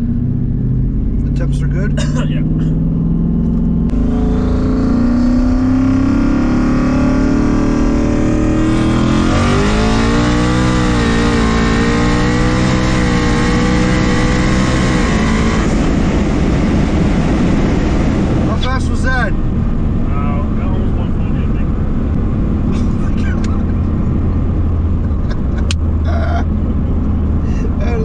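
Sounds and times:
turbo car engine pulling hard: 0:00.0 - 0:28.0.

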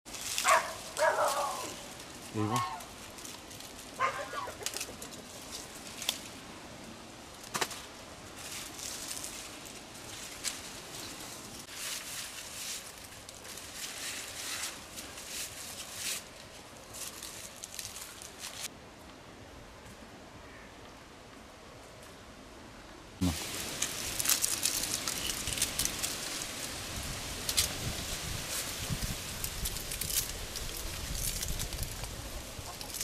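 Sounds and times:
leafy branches rustling: 0:00.1 - 0:18.7, 0:23.2 - 0:33.0
steady outdoor hiss: 0:00.1 - 0:33.0.

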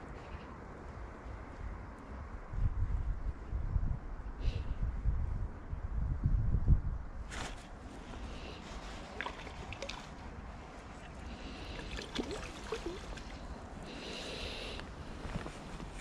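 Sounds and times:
lure splashing into water: 0:09.0 - 0:10.2, 0:11.0 - 0:13.4.

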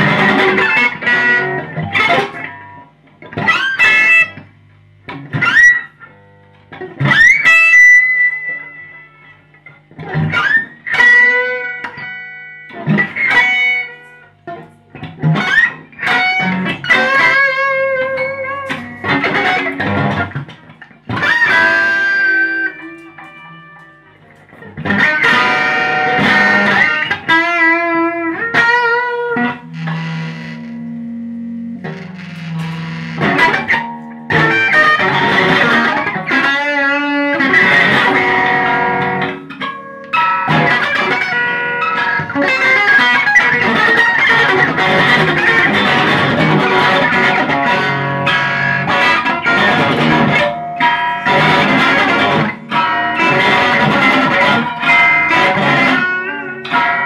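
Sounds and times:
electric guitar through amplifier: 0:00.0 - 0:57.0.

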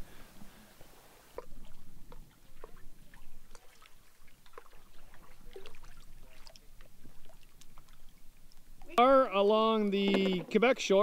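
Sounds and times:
paddle dipping and dripping: 0:01.3 - 0:11.0
small splashes of water: 0:01.4 - 0:08.9.

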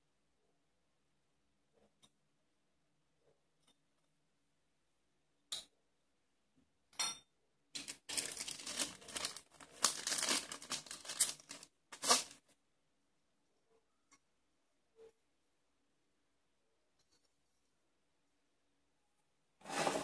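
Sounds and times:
plastic bag crinkling: 0:07.8 - 0:12.5.

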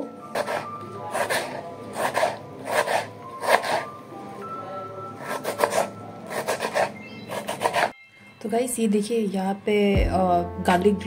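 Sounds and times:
background music: 0:00.0 - 0:11.0
knife cutting on wooden board: 0:00.3 - 0:03.9, 0:05.2 - 0:08.0.

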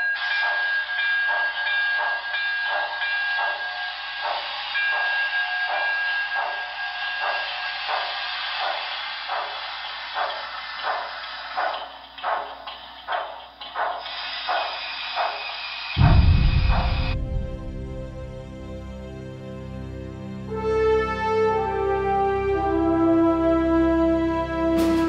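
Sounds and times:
steam exhaust chuffs: 0:00.2 - 0:18.5.

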